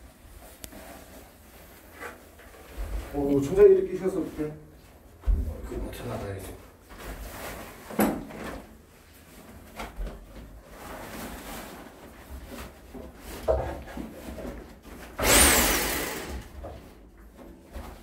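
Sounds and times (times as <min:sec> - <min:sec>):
tarp rustling: 0:09.0 - 0:13.2.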